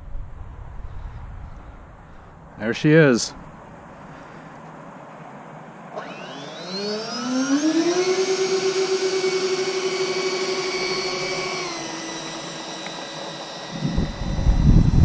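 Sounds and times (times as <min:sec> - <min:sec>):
electric ducted fans whining: 0:00.0 - 0:15.0.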